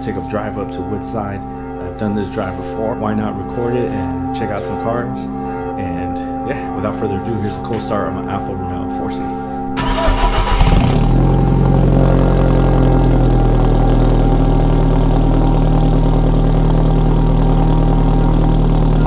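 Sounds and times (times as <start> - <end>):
car engine idling: 9.8 - 19.0.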